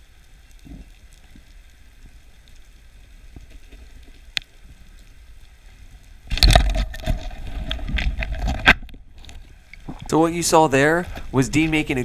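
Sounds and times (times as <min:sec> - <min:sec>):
underwater spear clatter and rumble: 0:00.5 - 0:10.1
knocks and rattles underwater: 0:03.2 - 0:04.8, 0:06.2 - 0:10.1.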